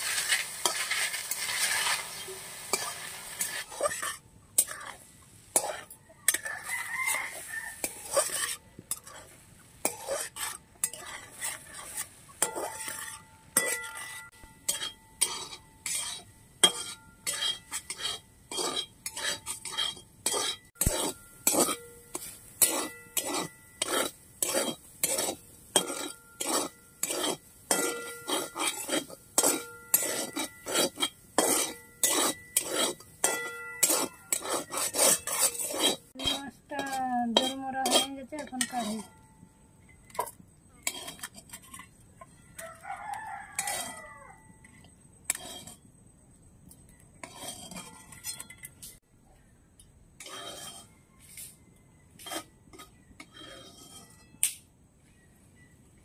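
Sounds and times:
frying sizzle: 0.0 - 13.8, 14.7 - 36.2
metal spatula scraping a wok: 0.0 - 46.0, 46.6 - 49.0, 50.2 - 55.7.

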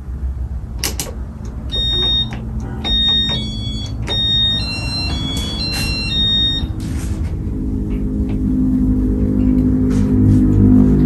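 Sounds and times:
ceiling fan low rumble: 0.0 - 11.0
high electronic tones: 1.7 - 6.8.

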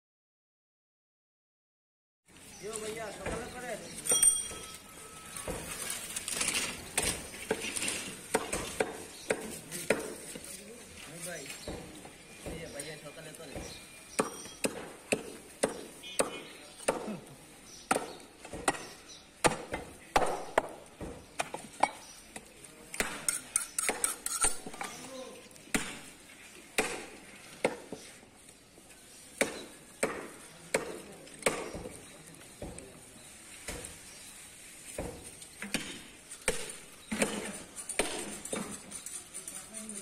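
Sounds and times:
clinks: 4.0 - 5.0.

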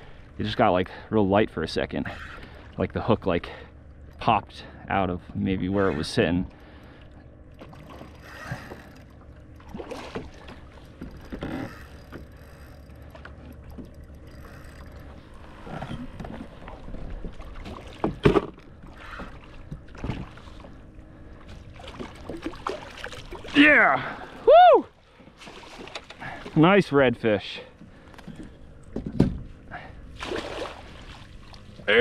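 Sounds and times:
water splashing: 7.6 - 20.8, 21.7 - 24.4, 30.2 - 32.0.

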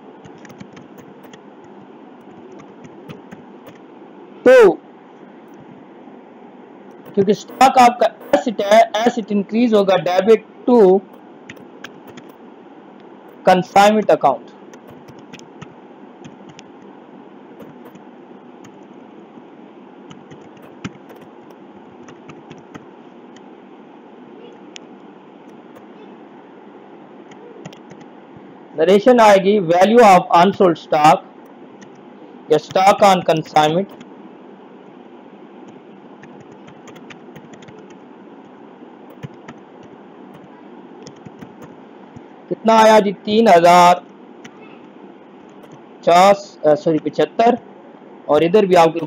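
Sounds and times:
low background noise: 0.0 - 49.0
steady background hiss: 0.0 - 49.0
keyboard keys clicking: 0.2 - 3.8, 6.9 - 8.5, 11.1 - 12.4, 14.7 - 16.7, 17.6 - 18.0, 20.1 - 23.4, 25.5 - 25.9, 27.3 - 28.1, 32.6 - 34.1, 35.7 - 38.0, 39.1 - 42.3, 45.5 - 45.8
keyboard key clicks: 0.3 - 1.4, 11.5 - 12.4, 14.8 - 16.7, 17.6 - 18.0, 20.1 - 22.8, 27.3 - 28.1, 39.1 - 39.6, 45.5 - 45.8.

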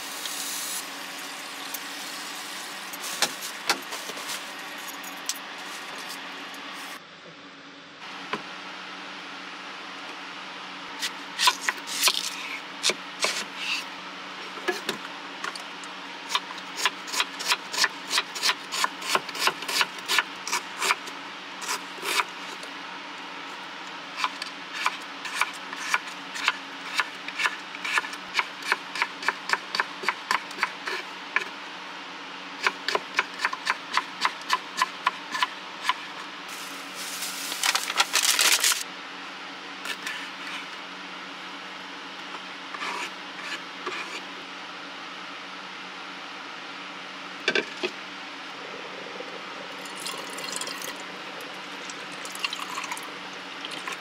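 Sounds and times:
plastic pack crinkling: 36.5 - 38.8.

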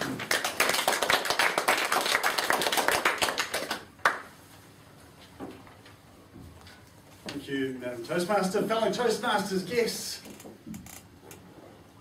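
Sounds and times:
audience applauding: 0.0 - 4.3.

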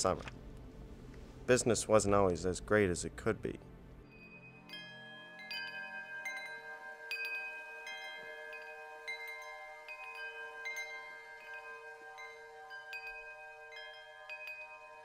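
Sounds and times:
wind chimes ringing: 4.1 - 15.0.

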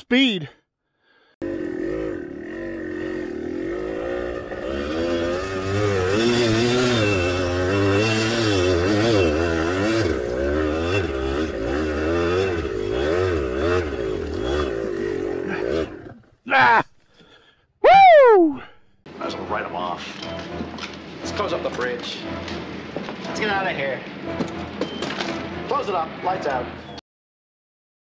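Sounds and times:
dirt bike engine revving: 1.4 - 16.3.

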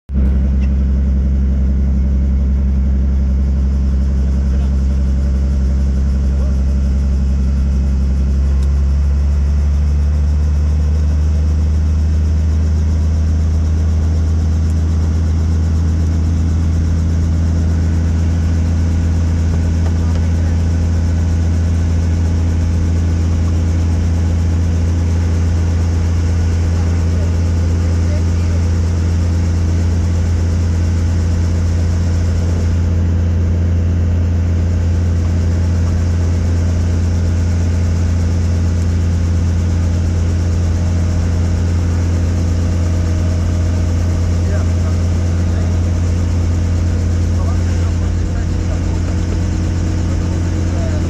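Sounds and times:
helicopter engine and rotor drone: 0.1 - 51.0.

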